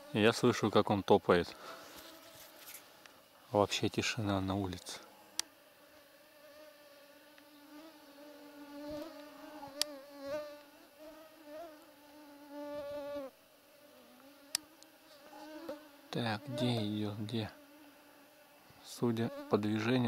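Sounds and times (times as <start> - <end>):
mosquito whining: 5.1 - 19.6.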